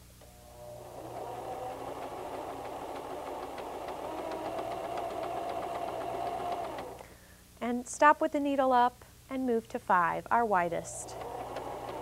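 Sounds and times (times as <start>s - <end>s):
sewing machine running: 0.7s - 7.0s, 11.0s - 12.0s.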